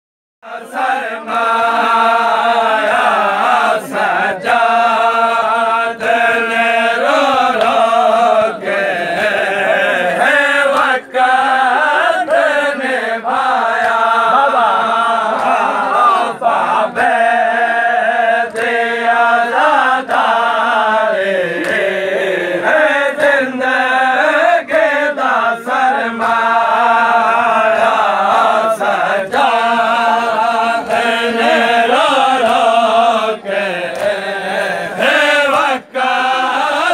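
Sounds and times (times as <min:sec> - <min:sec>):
men chanting a lament: 0:00.4 - 0:36.9
hands slapping chests: 0:06.0 - 0:08.1, 0:10.0 - 0:11.1, 0:13.6 - 0:16.2, 0:18.4 - 0:18.9, 0:21.6 - 0:22.1, 0:30.3 - 0:36.1.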